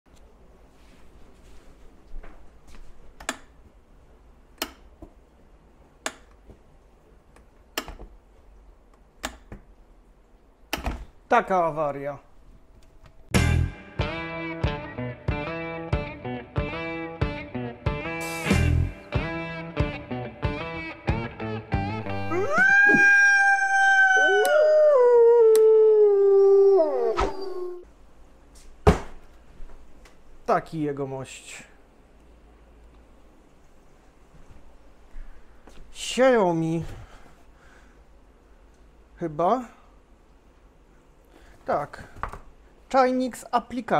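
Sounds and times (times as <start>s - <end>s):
guitar music: 13.3s - 22.3s
wolf howling: 22.1s - 27.9s.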